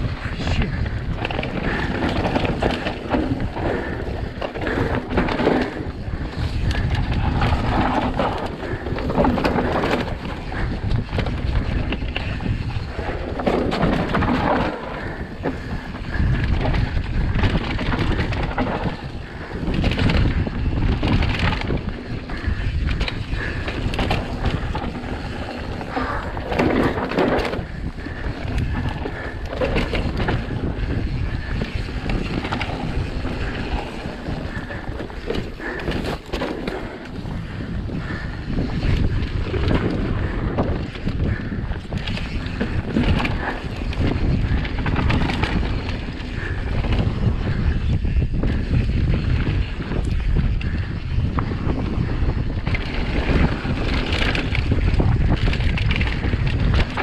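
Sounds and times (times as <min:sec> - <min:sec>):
bike rattling over bumps: 0:00.0 - 0:57.0
tyres rumbling over loose ground: 0:00.0 - 0:57.0
wind buffeting microphone: 0:00.0 - 0:57.0.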